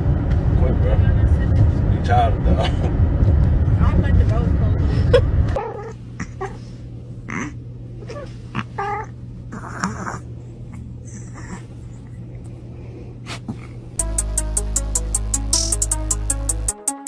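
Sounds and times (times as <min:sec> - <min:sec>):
electronic music with a beat: 0:14.0 - 0:17.0.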